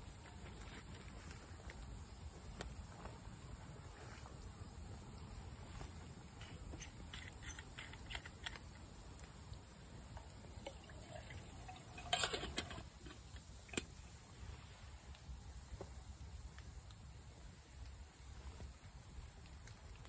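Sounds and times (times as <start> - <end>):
liquid pouring into metal mug: 10.6 - 13.3
handling clicks and knocks: 12.0 - 13.2.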